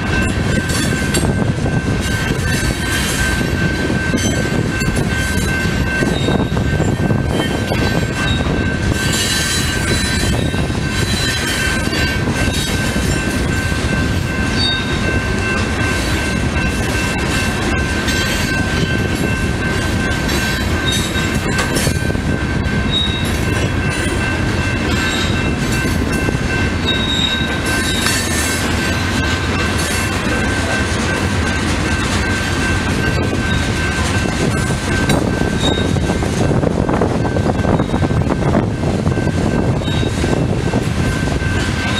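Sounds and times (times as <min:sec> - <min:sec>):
train wheels rumbling on rail: 0:00.0 - 0:41.9
high wheel squeal: 0:22.8 - 0:24.1, 0:26.8 - 0:30.4, 0:35.4 - 0:36.0.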